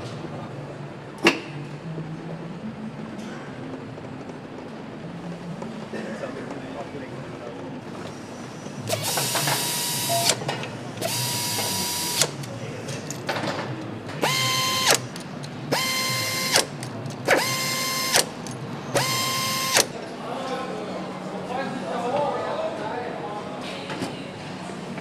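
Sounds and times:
nut runner whining: 0:14.2 - 0:18.4.

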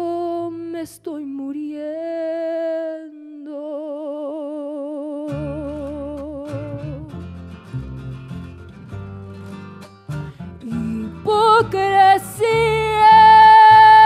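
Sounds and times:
strummed guitar: 0:05.2 - 0:14.0.

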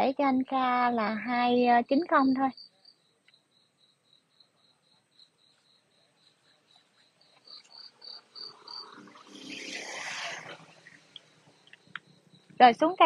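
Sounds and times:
insect chirping: 0:00.0 - 0:13.0.

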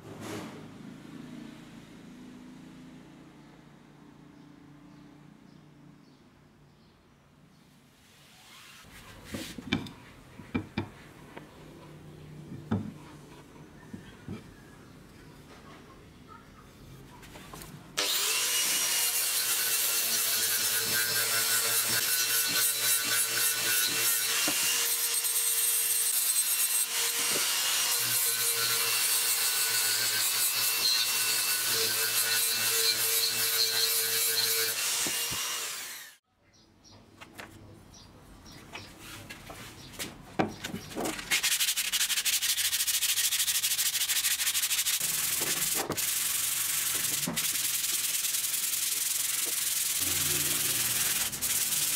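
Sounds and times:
power sander on wood: 0:18.0 - 0:36.2, 0:44.0 - 0:51.9
sandpaper rubbing on wood: 0:41.1 - 0:51.9.

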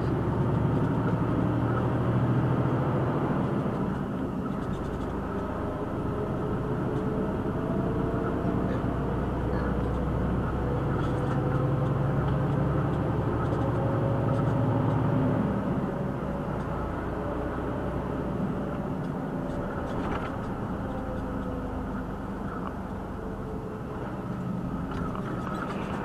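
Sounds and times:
lorry diesel engine running: 0:00.0 - 0:26.0.

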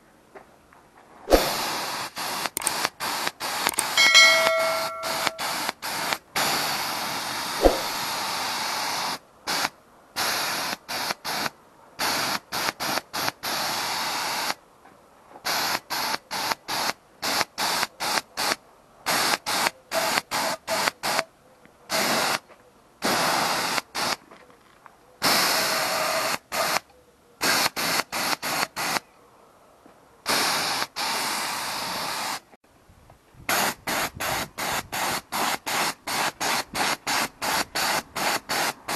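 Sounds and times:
sharp click: 0:03.7 - 0:05.5.

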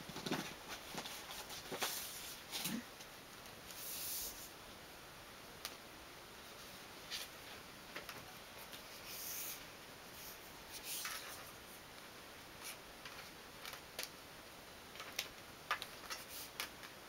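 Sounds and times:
paper strip rustling and crinkling: 0:00.1 - 0:02.8, 0:10.2 - 0:11.8, 0:12.6 - 0:14.2, 0:14.9 - 0:17.0.

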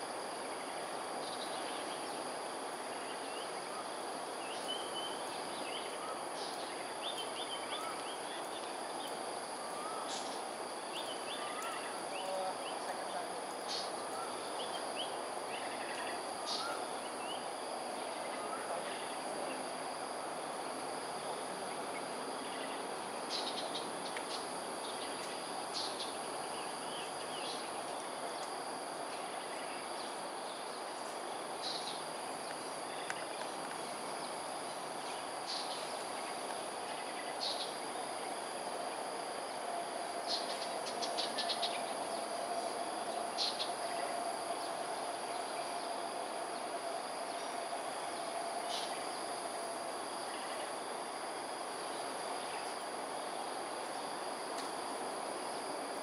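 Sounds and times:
faint steady hum: 0:00.0 - 0:56.0
insects droning: 0:00.0 - 0:56.0.

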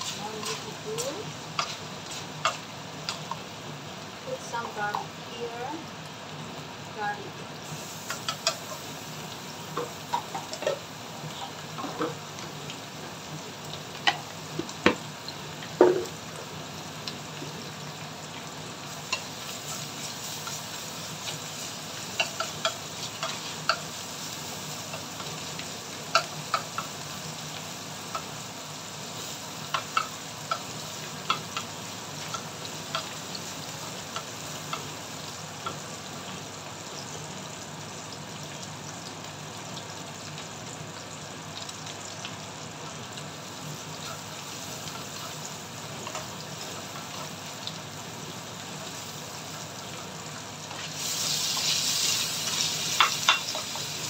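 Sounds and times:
spatula clicking and scraping pan: 0:00.0 - 0:03.4, 0:08.0 - 0:08.8, 0:19.1 - 0:24.0, 0:24.8 - 0:27.0, 0:29.2 - 0:35.0, 0:51.5 - 0:54.0
bacon sizzling in oil: 0:00.0 - 0:54.0.

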